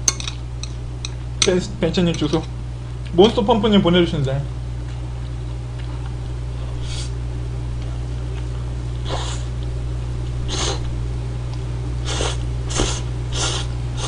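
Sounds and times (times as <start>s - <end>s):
steady low hum: 0.0s - 14.0s
person slurping noodles: 12.0s - 14.0s.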